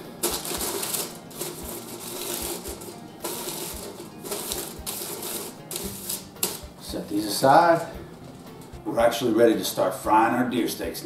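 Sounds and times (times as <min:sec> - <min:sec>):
aluminium foil crinkling: 0:00.0 - 0:06.6.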